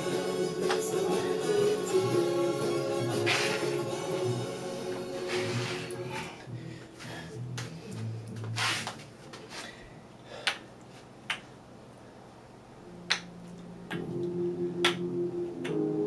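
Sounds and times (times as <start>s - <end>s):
background music: 0.0s - 8.8s, 12.8s - 16.0s.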